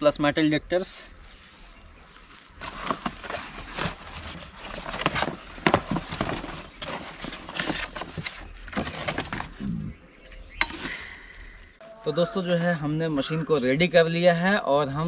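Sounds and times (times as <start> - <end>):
cardboard rustling and scraping: 2.2 - 9.8.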